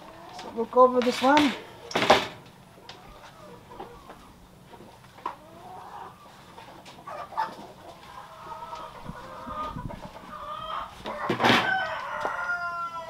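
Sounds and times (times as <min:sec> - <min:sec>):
chickens clucking: 0:00.0 - 0:13.0
rooster crowing: 0:10.4 - 0:13.0.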